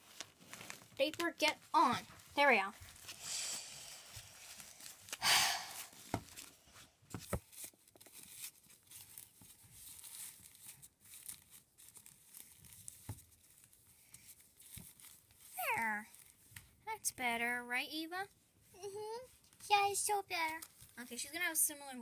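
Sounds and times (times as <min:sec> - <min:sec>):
paper diaper rustling and crinkling: 0:00.0 - 0:03.2, 0:03.9 - 0:16.8, 0:20.4 - 0:21.6.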